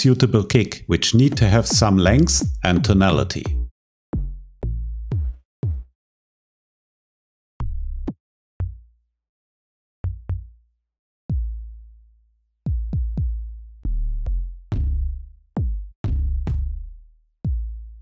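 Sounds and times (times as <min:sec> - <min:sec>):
electronic kick drum samples: 0:01.1 - 0:05.9, 0:12.7 - 0:13.4, 0:14.7 - 0:16.8.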